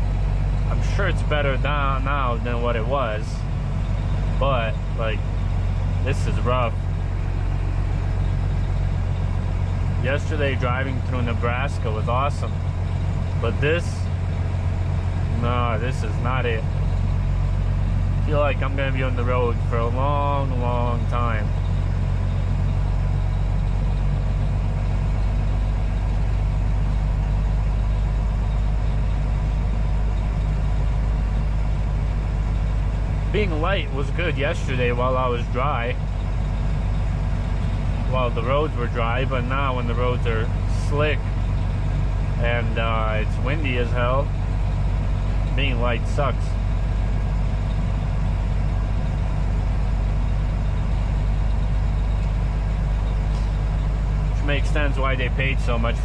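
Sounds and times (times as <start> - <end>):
diesel truck engine drone: 0.0 - 56.0
road and wind noise: 0.0 - 56.0.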